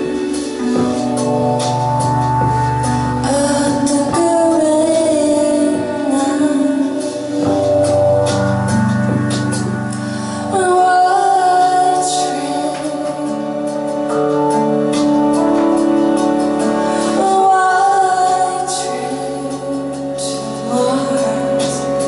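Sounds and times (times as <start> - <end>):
electric keyboard chords: 0.0 - 22.0
woman singing: 3.2 - 7.6, 10.3 - 14.2, 17.0 - 22.0.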